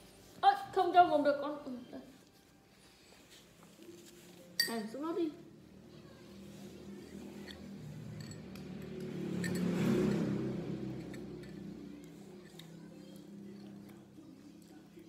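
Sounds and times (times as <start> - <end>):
spoon clinking against bowl: 4.6 - 5.0
vehicle passing by: 5.4 - 15.0.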